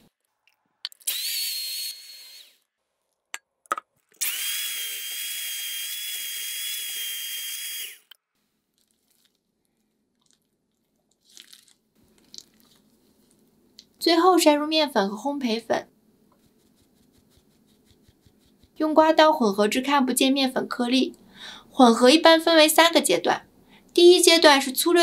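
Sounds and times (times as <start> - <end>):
electric mixer whining: 1.1 - 2.6, 4.2 - 8.1.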